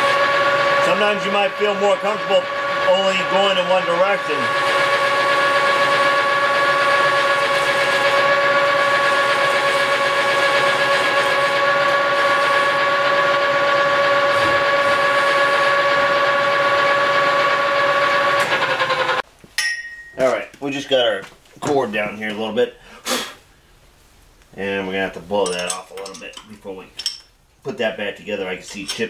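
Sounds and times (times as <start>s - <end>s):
lathe cutting tool squealing: 0.0s - 19.2s.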